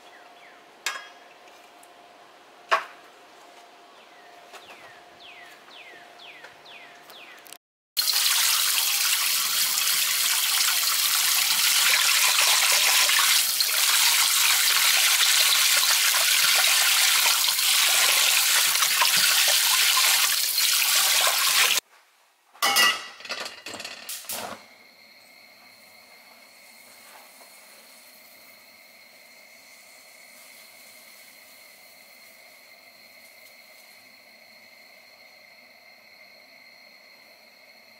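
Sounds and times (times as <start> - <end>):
sponge scrubbing a wok: 8.0 - 21.8
tap water running onto a wok: 8.0 - 21.8.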